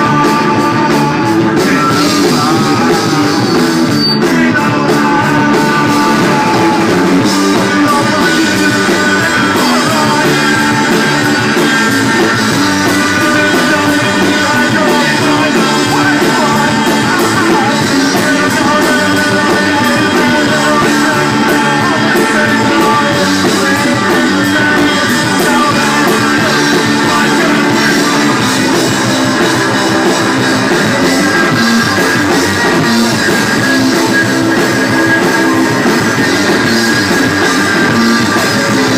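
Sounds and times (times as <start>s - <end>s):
bass guitar: 0.0s - 38.9s
drum kit: 0.0s - 38.9s
electric guitar: 0.0s - 38.9s
person singing: 0.0s - 38.9s.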